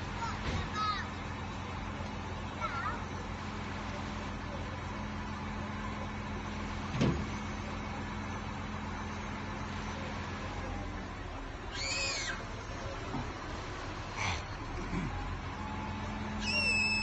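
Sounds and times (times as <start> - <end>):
diesel engine humming: 0.0 - 17.0
high-pitched squeal: 16.4 - 17.0.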